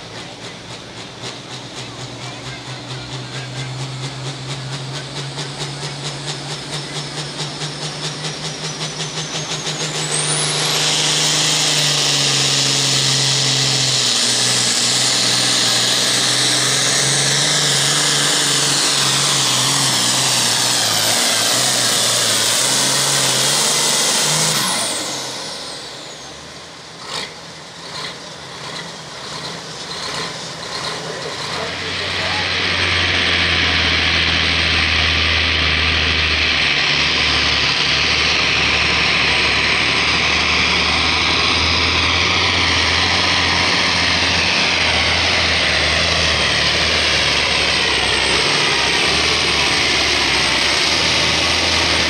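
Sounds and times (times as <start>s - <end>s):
high turbo whine: 0.0s - 52.0s
tractor diesel engine roaring: 0.0s - 52.0s.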